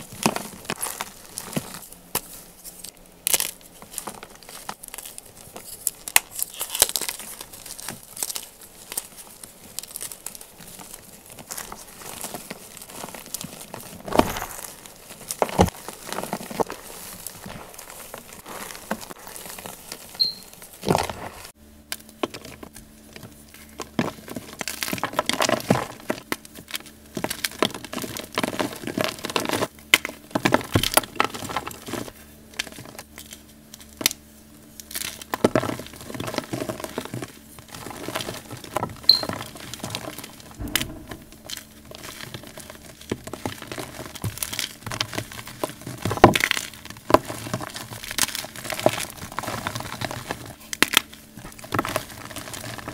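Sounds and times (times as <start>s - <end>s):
chalk crunching and crumbling: 0.0s - 21.6s.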